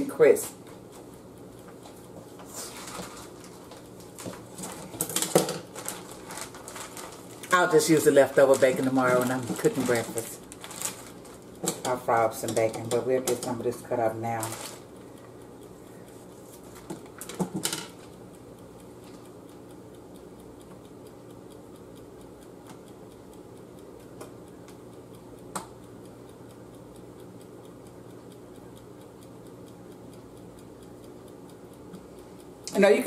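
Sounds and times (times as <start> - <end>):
bacon frying with pops: 0.4 - 15.4, 16.6 - 21.2.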